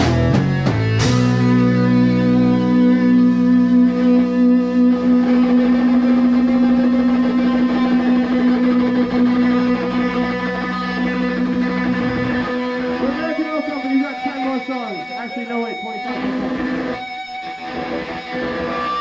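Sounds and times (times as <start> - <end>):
electric guitar chord ringing: 0.0 - 19.0.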